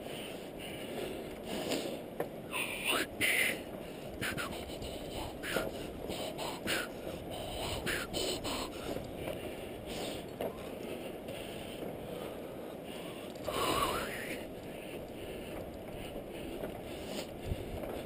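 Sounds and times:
steady low rush: 0.0 - 18.0
footsteps on wooden boards: 14.7 - 18.0.

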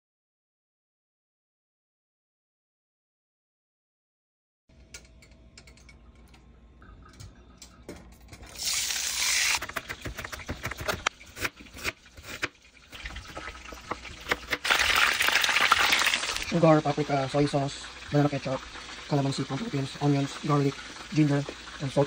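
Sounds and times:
butter sizzling in a wok: 8.6 - 9.7, 11.6 - 22.0.

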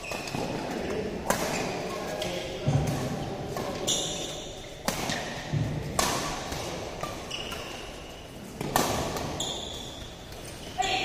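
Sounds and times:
racket striking shuttlecock: 2.7 - 10.5.

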